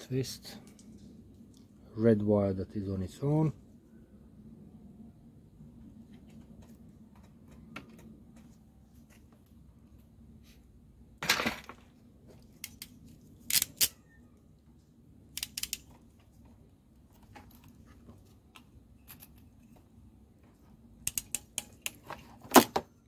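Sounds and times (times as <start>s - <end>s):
crimping pliers clicking: 15.3s - 15.9s, 21.0s - 22.0s.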